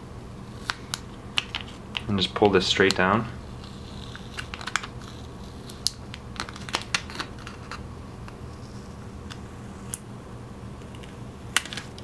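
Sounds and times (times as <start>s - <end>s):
steady low hum: 0.0s - 12.0s
plastic film peeling crackles: 3.6s - 7.8s.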